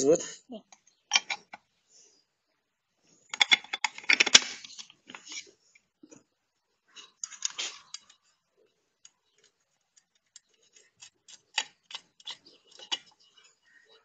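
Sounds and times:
small metallic clicks: 7.0 - 8.2, 9.0 - 13.7.

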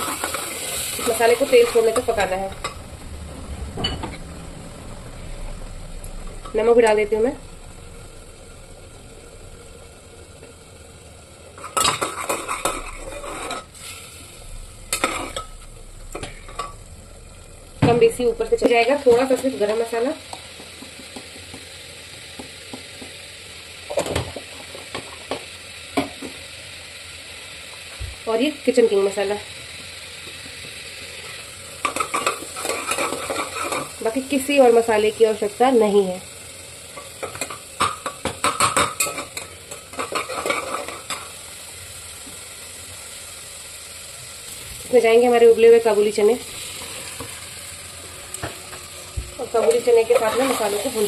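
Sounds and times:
sauce sizzling in oil: 0.0 - 51.0
spoon scraping a metal pot: 11.6 - 14.0.

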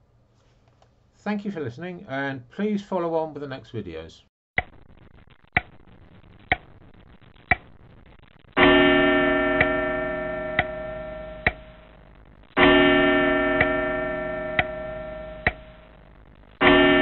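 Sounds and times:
clock-like ticking: 5.5 - 5.8, 6.5 - 6.7, 7.4 - 7.7, 8.6 - 11.9, 12.6 - 16.0
bell-like ringing tone: 8.6 - 11.8, 12.6 - 15.8, 16.6 - 17.0.

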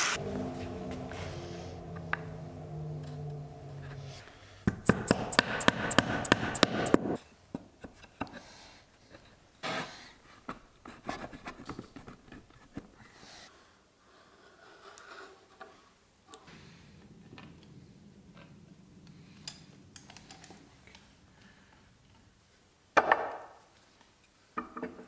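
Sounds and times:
rubber mallet tapping wood: 4.7 - 7.2.

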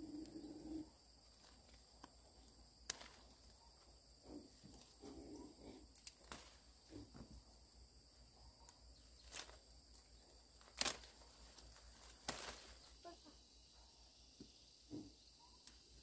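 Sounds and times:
high insect drone: 0.0 - 16.0
outdoor rustling: 0.0 - 16.0
sharp snaps: 2.8 - 3.2, 10.6 - 11.3.

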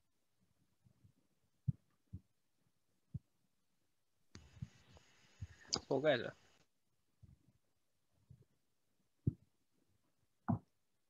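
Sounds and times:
soft low thuds: 1.6 - 2.3, 3.1 - 3.4.

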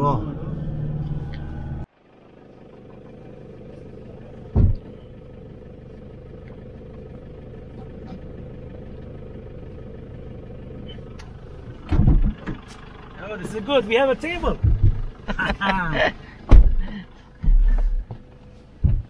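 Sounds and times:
truck engine idling: 0.0 - 19.0
heavy thump in truck bed: 4.5 - 4.8, 11.8 - 12.6, 14.6 - 15.1, 16.5 - 18.2.

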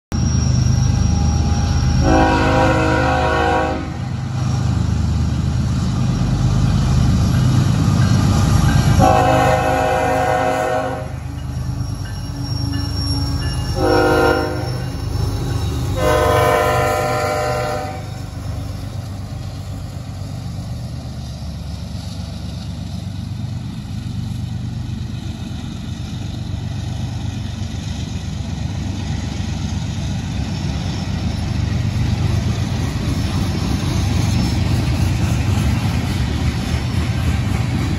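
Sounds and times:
diesel locomotive rumble: 0.1 - 37.9
train horn blasts: 1.5 - 4.2, 8.8 - 11.4, 12.8 - 15.1, 15.8 - 18.3.

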